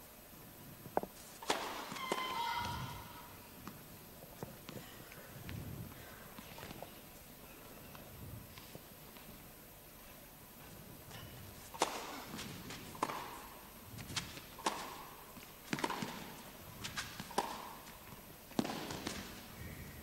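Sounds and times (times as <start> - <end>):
tennis ball struck with rackets: 1.4 - 2.9, 11.7 - 19.4
tennis ball bouncing on court: 1.4 - 3.0, 11.7 - 13.5, 14.1 - 19.4.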